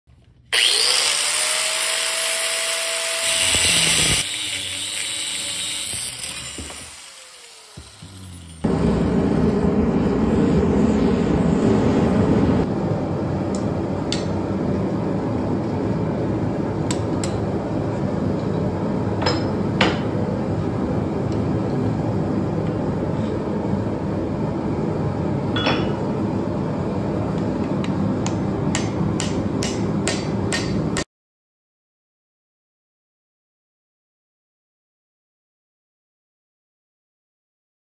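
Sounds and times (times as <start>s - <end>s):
forge burner rushing: 3.3s - 16.9s.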